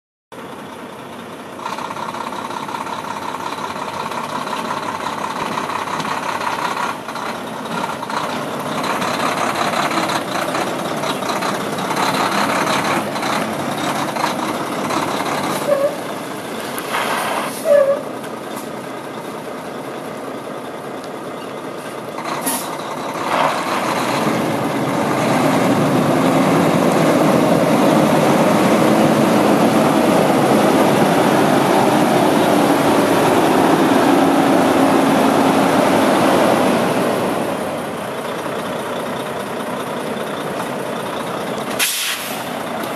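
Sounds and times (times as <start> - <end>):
diesel truck engine running: 0.3 - 42.9
air brake hiss: 16.9 - 17.8, 41.8 - 42.6.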